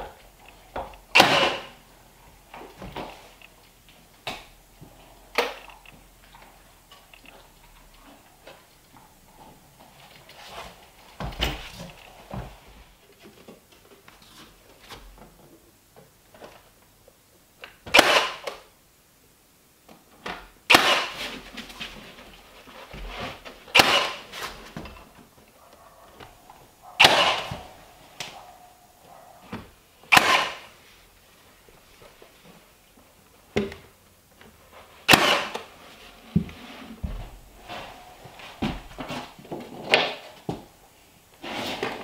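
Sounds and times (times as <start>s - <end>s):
nail gun firing: 1.1s - 1.8s, 17.9s - 18.6s, 20.7s - 21.2s, 23.7s - 24.3s, 27.0s - 27.6s, 30.1s - 30.7s, 35.1s - 35.7s.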